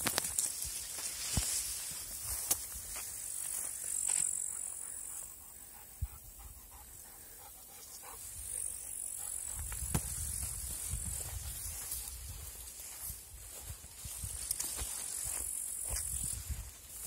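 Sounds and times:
dry grass swishing: 0.0 - 3.6
footsteps: 0.0 - 5.4, 7.8 - 17.0
insects hissing: 0.0 - 17.0.

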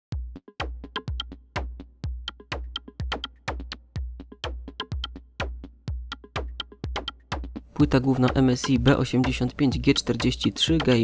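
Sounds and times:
sharp ticking clicks: 2.2 - 3.7, 4.7 - 5.2, 6.0 - 7.3.

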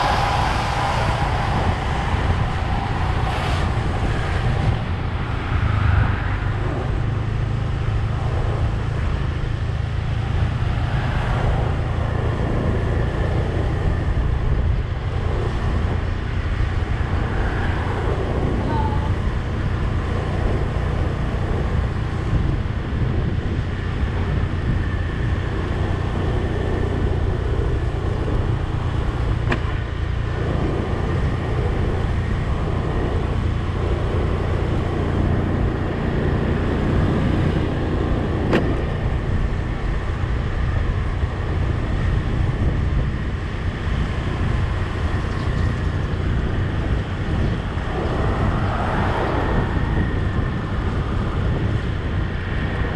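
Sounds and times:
vehicle engine rumble and road noise: 0.0 - 52.9.

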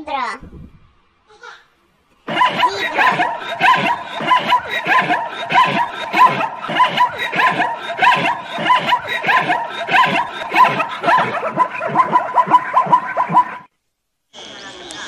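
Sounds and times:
zebra barking yelps: 2.3 - 13.7.

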